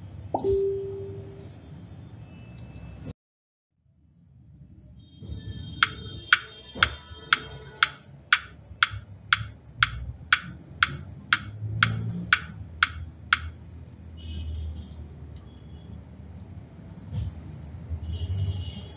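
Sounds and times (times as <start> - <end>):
clock ticking: 5.8 - 13.6.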